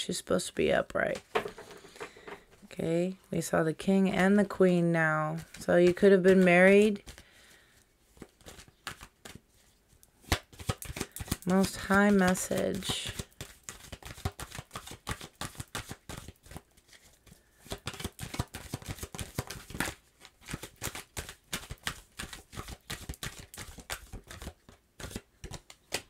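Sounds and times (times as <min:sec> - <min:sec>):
cards being shuffled: 0:05.3 - 0:07.3, 0:08.1 - 0:26.0.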